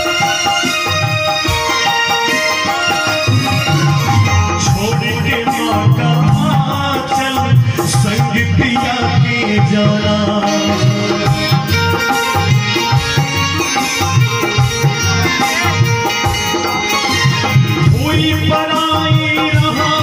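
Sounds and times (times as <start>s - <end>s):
hand drum rhythm: 0.0s - 20.0s
harmonium melody: 0.0s - 20.0s
indian banjo melody: 0.0s - 20.0s.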